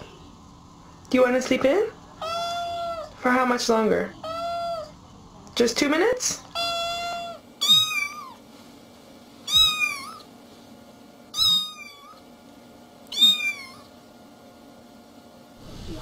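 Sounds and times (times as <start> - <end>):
cat meowing: 2.2 - 3.2, 4.2 - 5.0, 6.5 - 8.4, 9.5 - 10.3, 11.4 - 12.2, 13.1 - 13.9.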